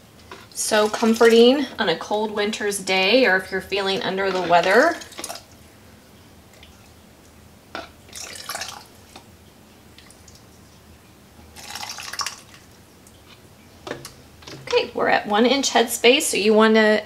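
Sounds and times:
liquid pouring into a jar: 8.1 - 9.1, 11.5 - 12.7.

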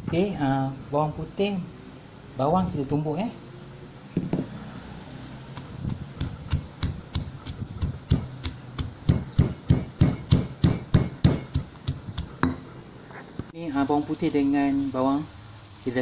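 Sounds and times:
stone pestle pounding in mortar: 5.5 - 12.6.

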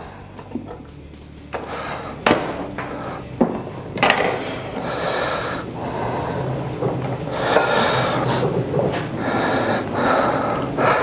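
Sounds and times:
dishes knocking: 1.6 - 4.8.

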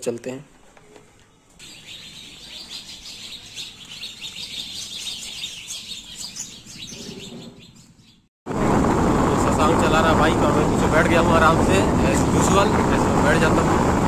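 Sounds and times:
small birds chirping: 1.6 - 8.3.

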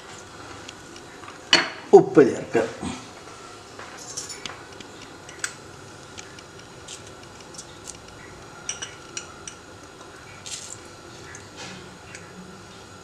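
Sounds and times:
spoon clinking against metal pot: 8.7 - 9.6.

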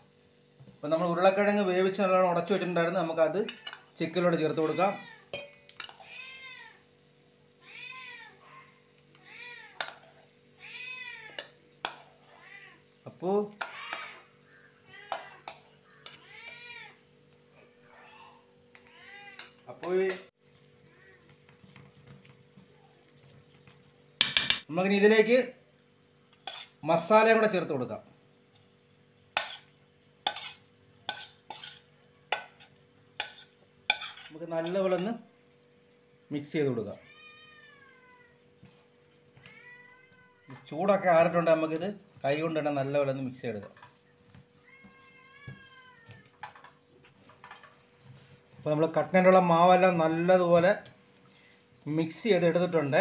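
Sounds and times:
spoon clinking on steel bowl: 5.3 - 6.0
cat meowing: 7.6 - 9.9, 13.6 - 14.2, 16.0 - 17.0, 17.9 - 19.5, 37.0 - 38.4, 39.4 - 40.6, 44.6 - 46.4
spoon scraping metal bowl: 26.4 - 27.2, 29.4 - 35.1.

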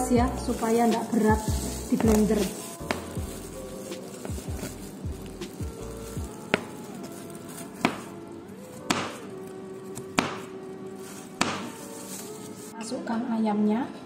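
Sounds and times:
knife chopping on cutting board: 7.8 - 8.1, 8.8 - 9.2, 10.0 - 10.5, 11.4 - 11.8.

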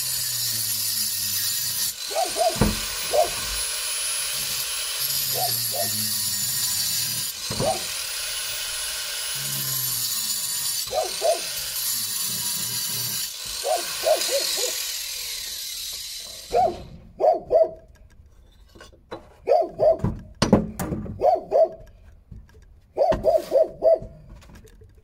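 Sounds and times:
dog barking: 2.1 - 3.4, 5.3 - 5.9, 10.9 - 11.5, 13.6 - 14.8, 16.5 - 17.8, 19.4 - 20.1, 21.2 - 21.8, 23.0 - 24.2
sharp knocks: 2.4 - 2.9.

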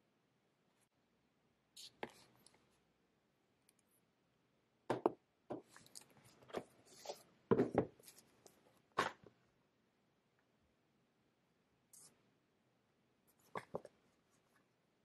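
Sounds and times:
objects knocking on a desk: 4.9 - 5.7, 7.5 - 8.0.

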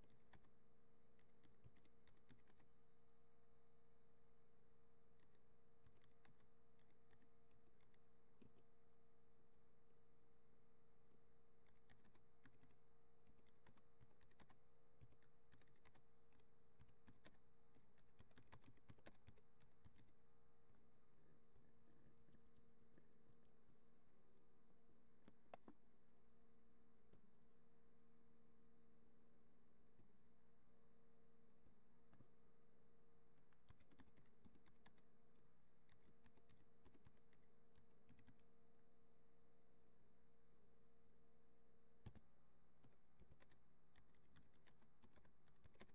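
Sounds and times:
low steady hum: 0.0 - 45.9
keyboard typing clicks: 1.2 - 2.7, 5.2 - 8.6, 11.6 - 20.1, 33.5 - 35.1, 38.1 - 38.4, 42.0 - 45.9.

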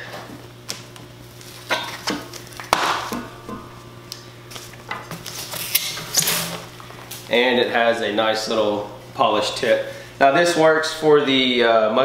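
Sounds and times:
plastic wrapping crinkling: 0.6 - 3.2, 4.0 - 7.4.

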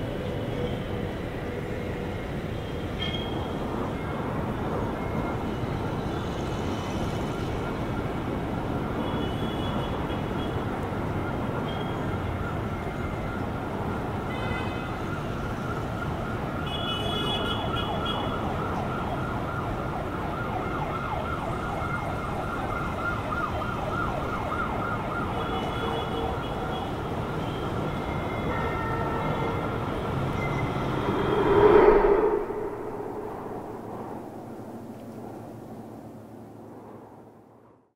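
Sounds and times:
wavering siren: 11.1 - 16.8, 17.6 - 34.8
traffic rumble: 26.6 - 35.6.

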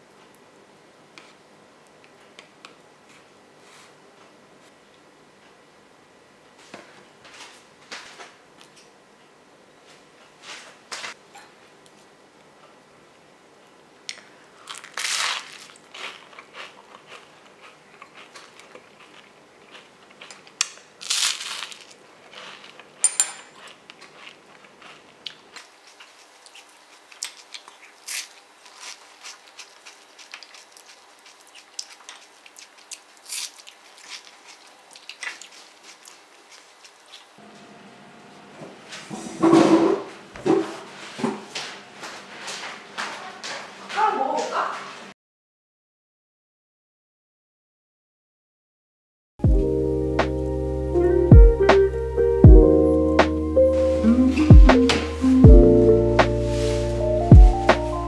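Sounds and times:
wheat biscuit crunching: 14.1 - 37.4.

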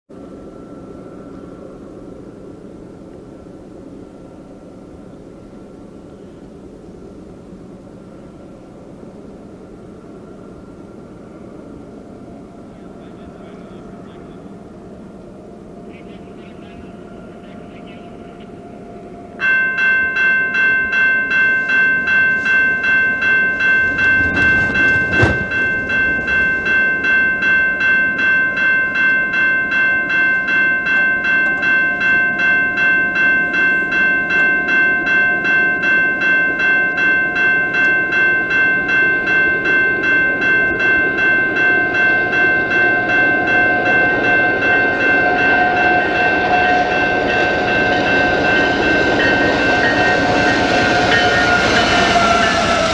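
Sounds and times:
freight train rumble: 0.1 - 52.9
railway crossing bell ringing: 12.0 - 52.9.

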